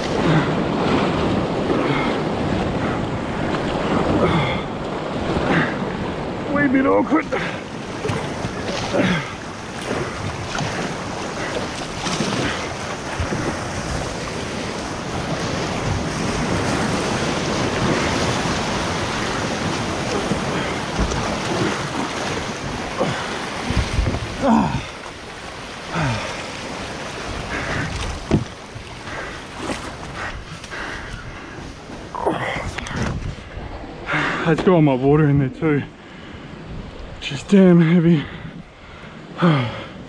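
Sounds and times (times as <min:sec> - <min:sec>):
wind buffeting microphone: 0:00.0 - 0:37.4
ocean surge rushing and foaming: 0:00.0 - 0:40.0
dull knocks: 0:28.2 - 0:28.6.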